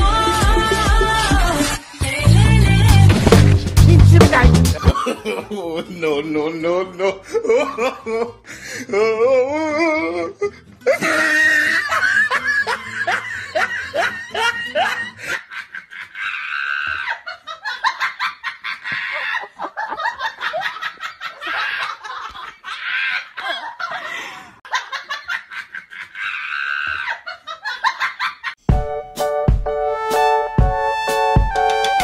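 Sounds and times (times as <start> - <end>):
music: 0.0 - 4.9, 28.6 - 32.0
person laughing hard: 4.6 - 5.9, 7.0 - 8.4, 9.0 - 28.6.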